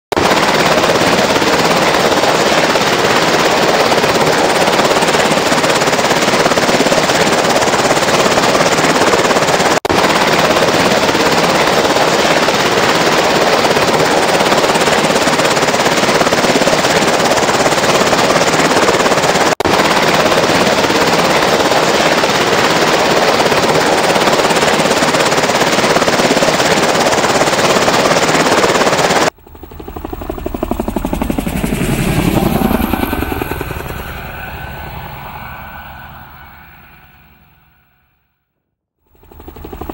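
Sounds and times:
tiltrotor aircraft flying over: 0:00.2 - 0:38.2, 0:39.0 - 0:39.9.

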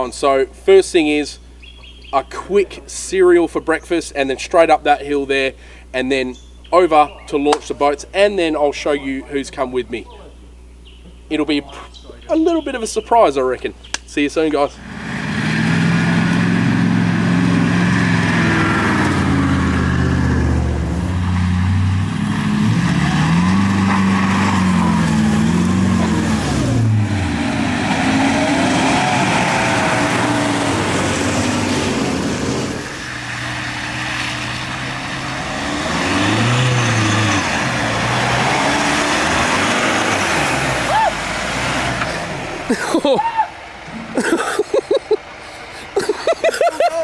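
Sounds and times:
vehicle engine revving hard: 0:14.8 - 0:43.0.

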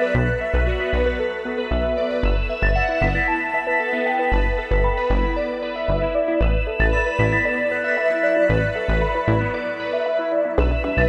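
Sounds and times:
sustained synth notes: 0:00.0 - 0:11.0
low bass notes in steady beat: 0:00.2 - 0:03.4, 0:04.3 - 0:07.5, 0:08.5 - 0:09.6, 0:10.6 - 0:11.0.

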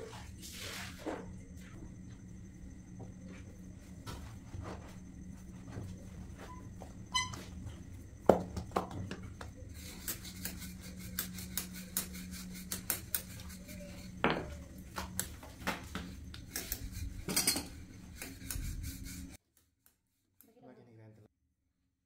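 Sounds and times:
steady low hum: 0:00.0 - 0:19.4
metal utensils clinking on cookware: 0:17.3 - 0:17.8.

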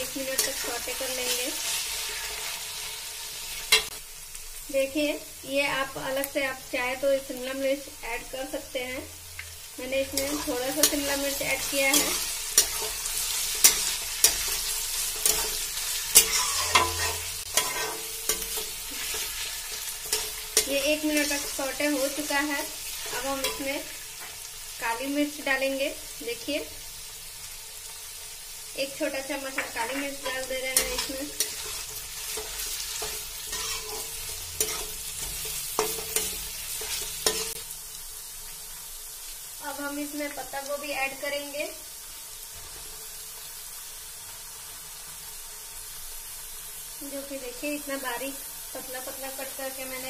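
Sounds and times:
vegetables sizzling in hot oil: 0:00.0 - 0:50.0
metal spatula scraping pan: 0:10.0 - 0:24.3, 0:29.5 - 0:37.6.

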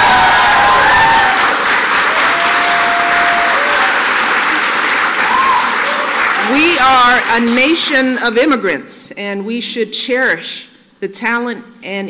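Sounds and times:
people cheering and whooping: 0:00.0 - 0:06.6
audience applauding: 0:00.0 - 0:07.8.

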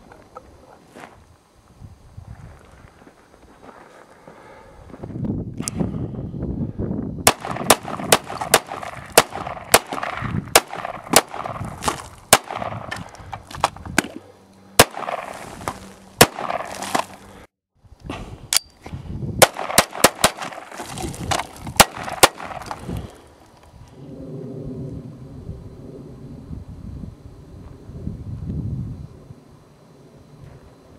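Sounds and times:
pistol shots: 0:07.2 - 0:11.6, 0:12.3 - 0:12.9, 0:14.8 - 0:15.3, 0:16.2 - 0:17.0, 0:19.4 - 0:20.8, 0:21.8 - 0:22.7.

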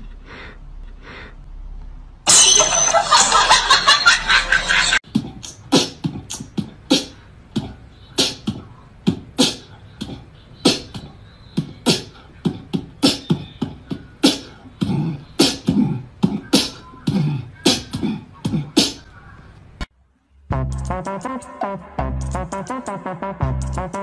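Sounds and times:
beatbox mouth percussion: 0:05.0 - 0:19.1, 0:20.6 - 0:24.0.

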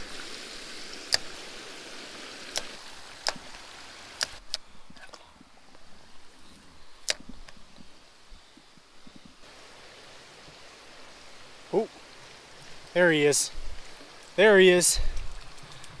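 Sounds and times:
creek water running: 0:00.0 - 0:16.0
sharp clicks: 0:01.1 - 0:01.4, 0:02.5 - 0:03.5, 0:04.2 - 0:05.1, 0:07.0 - 0:07.6.

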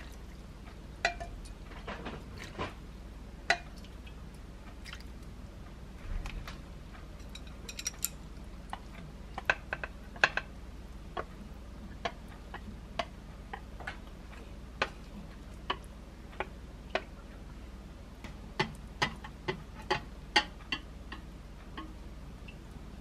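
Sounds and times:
low steady hum: 0:00.0 - 0:23.0
chopsticks clicking on tray and bowl: 0:18.6 - 0:21.9.

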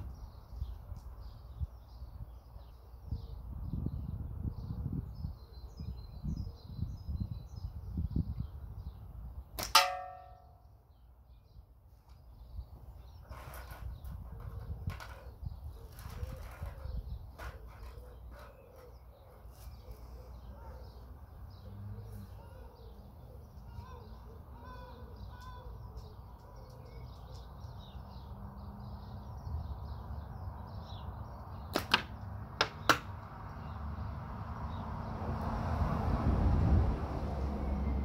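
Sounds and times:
wind rumbling on microphone: 0:00.0 - 0:09.6, 0:12.4 - 0:18.6, 0:34.7 - 0:38.0.

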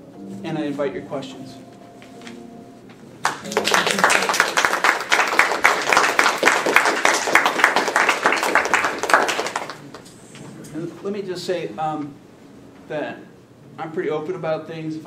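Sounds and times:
audience applauding: 0:03.2 - 0:10.1.

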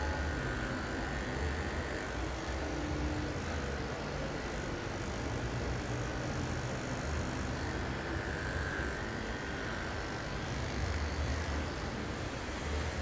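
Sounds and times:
electric hair clippers buzzing: 0:00.0 - 0:13.0.

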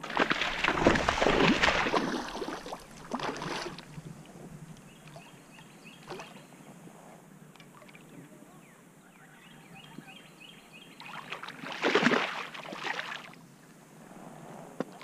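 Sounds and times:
fish splashing and thrashing: 0:00.0 - 0:04.0
water movement: 0:00.0 - 0:06.7.

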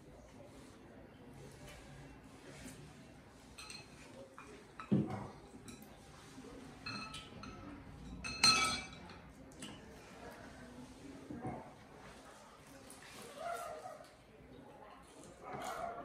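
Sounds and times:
chopsticks clinking against a bowl: 0:03.4 - 0:06.0, 0:06.6 - 0:09.9.

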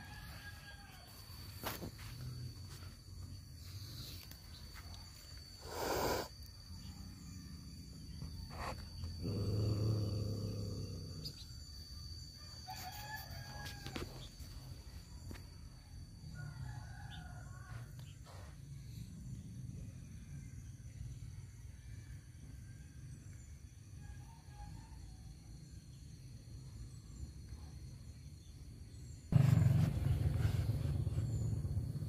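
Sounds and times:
rooster crowing faintly: 0:00.0 - 0:01.9.

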